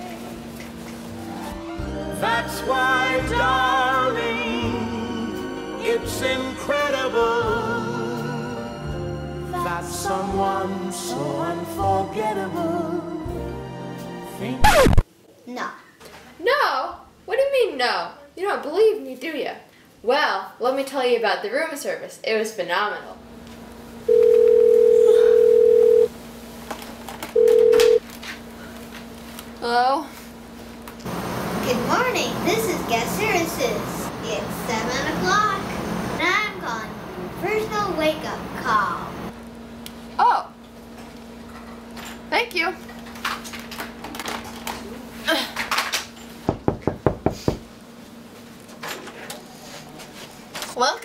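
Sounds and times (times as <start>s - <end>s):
telephone ringing: 24.1s - 26.1s, 27.4s - 28.0s
knocking on a door: 46.5s - 47.7s.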